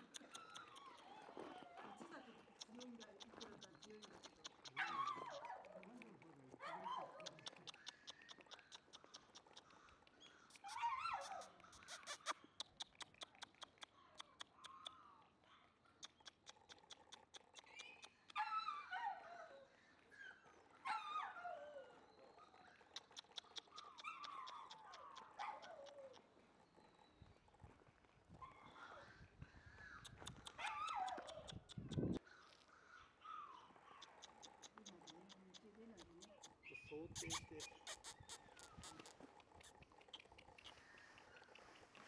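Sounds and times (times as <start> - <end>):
puppy whining: 0.0 - 2.1, 2.7 - 9.7, 10.5 - 13.2, 16.0 - 27.8, 30.0 - 32.2
rapid faint ticking: 2.1 - 4.8, 33.9 - 42.0.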